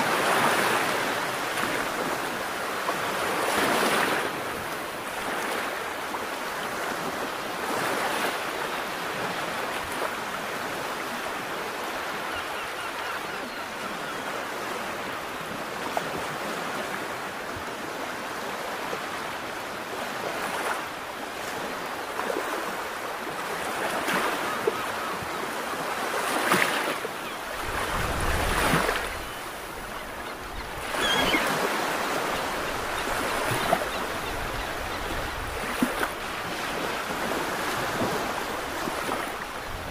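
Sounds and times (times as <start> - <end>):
sea waves washing: 0.0 - 39.9.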